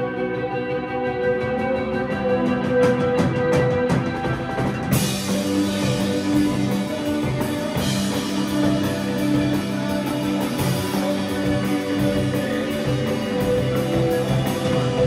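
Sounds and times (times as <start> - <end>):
drum kit: 0.0 - 15.0
electric guitars: 0.0 - 15.0
cymbals: 3.8 - 15.0.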